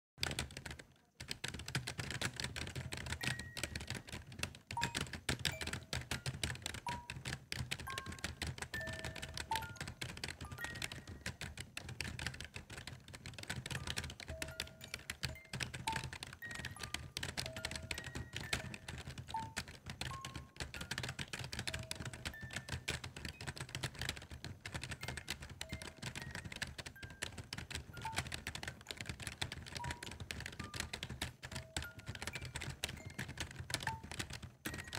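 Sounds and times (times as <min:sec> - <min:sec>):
keyboard typing clicks: 0:00.2 - 0:34.9.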